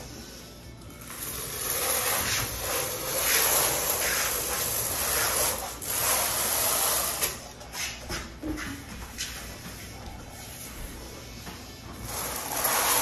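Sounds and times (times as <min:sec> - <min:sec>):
trowel scraping mortar on tile: 0:01.2 - 0:08.0, 0:12.0 - 0:13.0.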